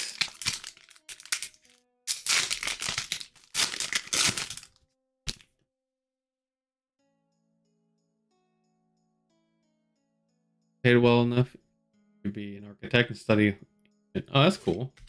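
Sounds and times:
foil wrapper crinkling and tearing: 0.0s - 5.4s.

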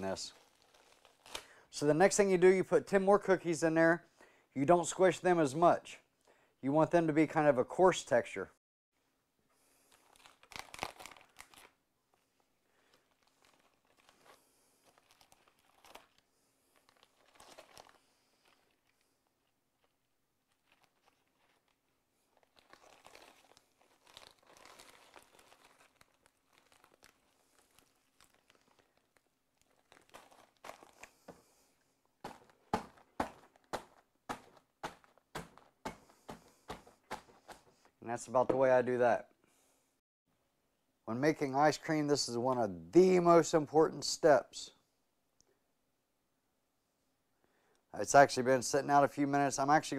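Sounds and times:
plastic bag rustling: 0.0s - 1.5s, 9.8s - 11.7s, 12.7s - 19.2s, 19.8s - 38.0s
plastic wrapper crinkling: 0.0s - 1.6s, 9.8s - 37.9s
rolling pin crushing cookies: 32.2s - 37.7s.

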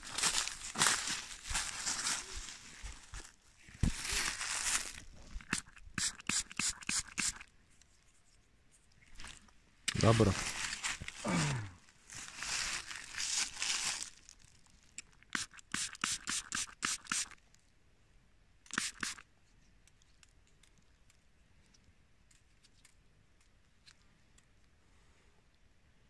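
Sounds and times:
fingers scraping soil off coin: 5.4s - 7.5s, 15.0s - 17.4s, 18.7s - 19.2s.

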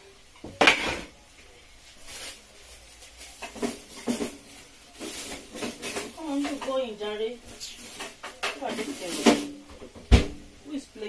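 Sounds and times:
foil tray clattering: 2.0s - 7.0s, 7.6s - 9.6s
knocks and rustles: 3.0s - 6.8s, 7.5s - 10.4s.

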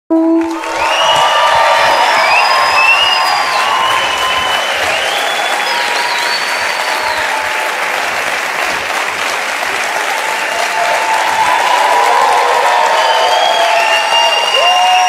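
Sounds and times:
audience applauding: 0.1s - 15.0s
cheering shouts and whistles: 0.2s - 15.0s.

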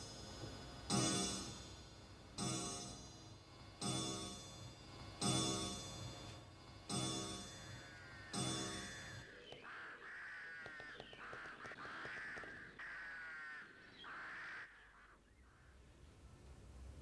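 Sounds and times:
crows cawing: 7.4s - 15.9s.

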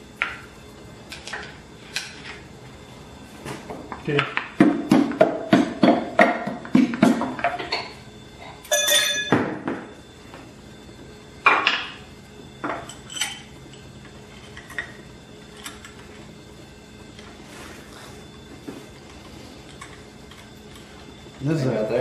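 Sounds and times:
ringing metal clang: 8.7s - 9.6s.

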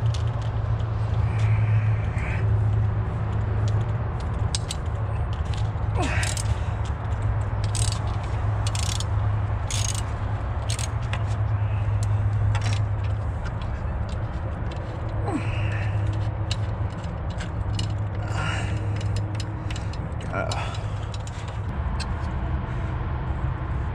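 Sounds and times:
steady low hum: 0.0s - 23.9s
metal tools clinking and scraping: 3.6s - 22.1s.

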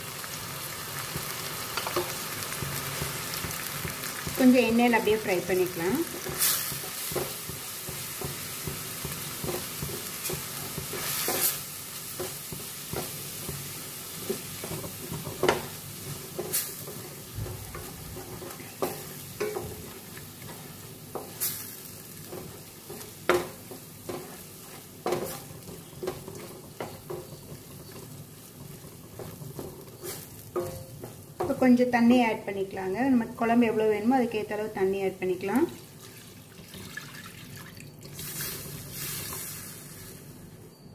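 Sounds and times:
food sizzling in oil: 0.0s - 40.5s
wooden spatula scraping pan: 22.3s - 31.6s.

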